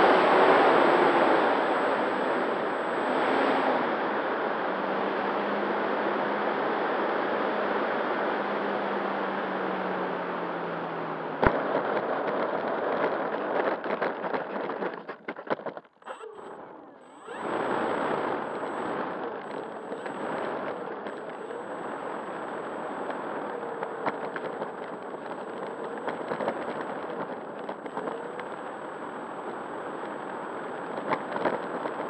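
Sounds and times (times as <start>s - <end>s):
propeller wash and motor rushing: 16.0s - 29.6s
faint high whine: 16.0s - 32.0s.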